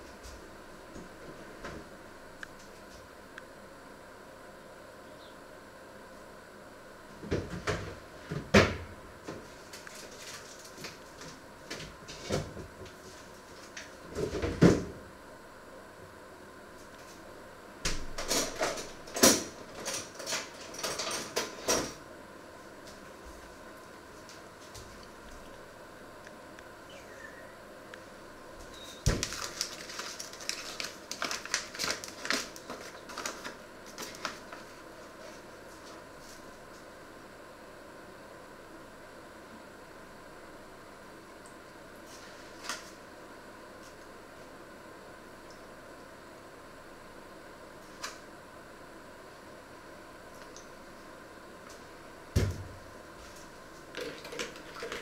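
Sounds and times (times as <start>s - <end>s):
knocks and clatters in kitchen: 7.2s - 9.4s, 14.1s - 15.0s
paper bag crinkling: 9.6s - 11.2s, 29.0s - 35.4s
thump: 52.4s - 52.7s.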